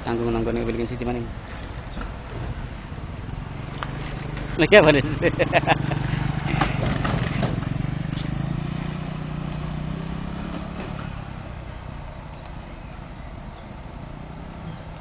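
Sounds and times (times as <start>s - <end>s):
scooter engine humming: 1.3s - 15.0s.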